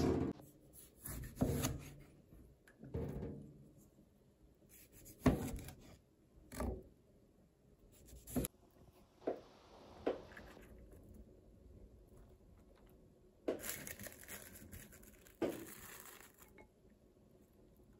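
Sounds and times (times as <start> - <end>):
knife cutting tomato on board: 0.8 - 2.1, 4.7 - 6.8, 8.0 - 8.5.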